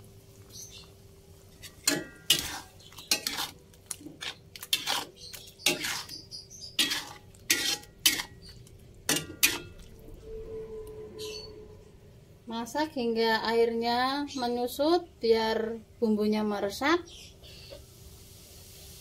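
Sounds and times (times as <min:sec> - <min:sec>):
metal spatula scraping wok: 0:01.5 - 0:10.5.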